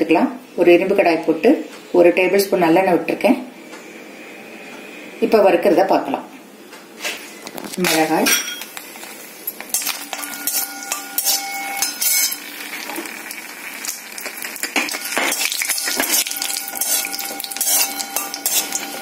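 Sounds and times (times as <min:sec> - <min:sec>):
oil sizzling: 0:08.0 - 0:19.0
metal spoon scraping an iron pan: 0:09.8 - 0:12.4, 0:14.8 - 0:19.0.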